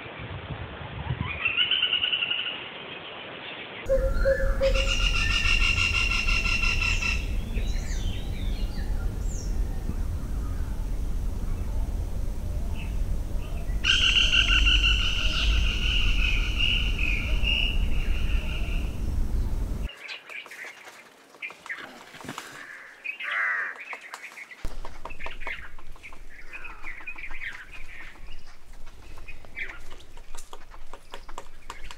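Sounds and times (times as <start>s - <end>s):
woodpecker trilled call: 3.9s - 9.6s, 13.8s - 19.0s
low background rumble: 3.9s - 19.9s, 24.7s - 31.9s
bird calls and rattles: 3.9s - 31.9s.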